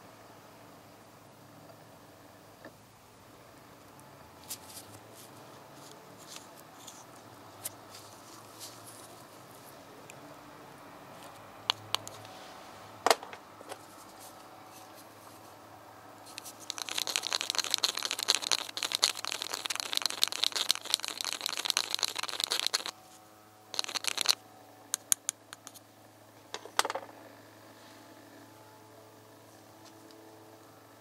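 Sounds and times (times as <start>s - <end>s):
rod stirring in plastic cup: 11.1s - 12.3s, 16.3s - 23.0s, 23.7s - 24.4s, 25.0s - 25.8s.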